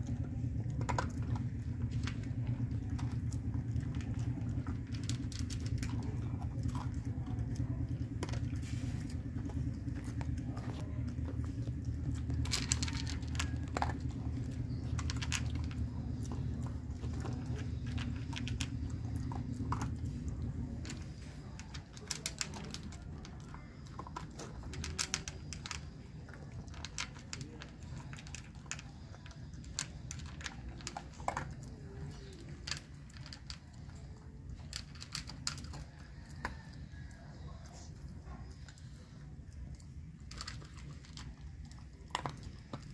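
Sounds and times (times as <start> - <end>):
dog chewing dry kibble: 0.0 - 42.9
low steady rumble: 0.0 - 42.9.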